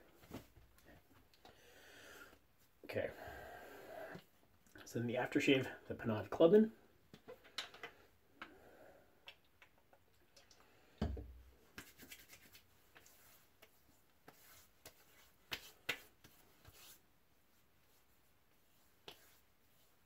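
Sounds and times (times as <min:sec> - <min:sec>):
hands patting face: 0:11.6 - 0:16.9.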